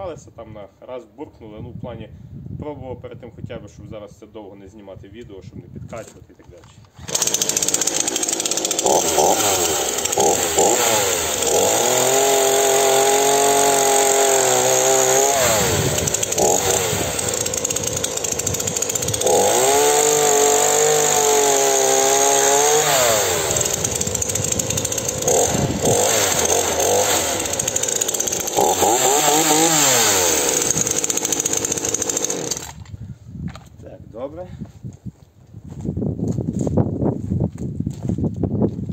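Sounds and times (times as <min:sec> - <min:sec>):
chainsaw cutting into log: 0:06.9 - 0:32.8
chainsaw engine revving: 0:07.0 - 0:32.8.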